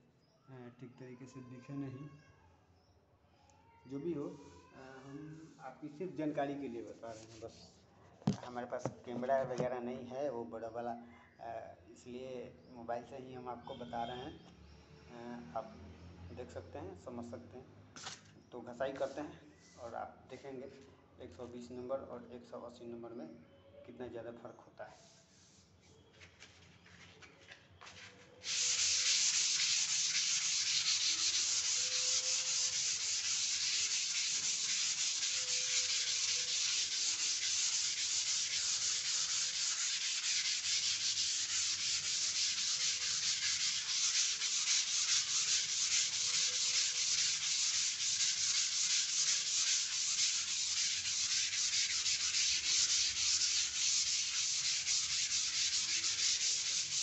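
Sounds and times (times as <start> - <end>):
hand sanding scratchy hiss: 28.4 - 57.0.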